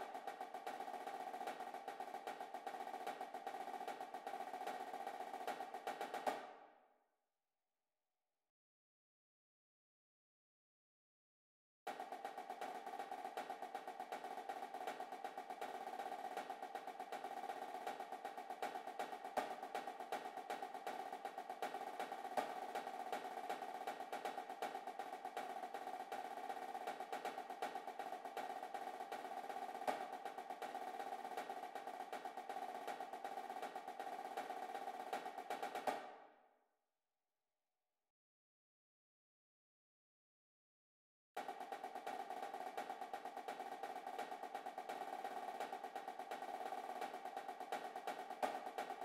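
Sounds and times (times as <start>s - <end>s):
snare drum roll: 0.0s - 6.6s, 11.9s - 36.3s, 41.4s - 49.0s.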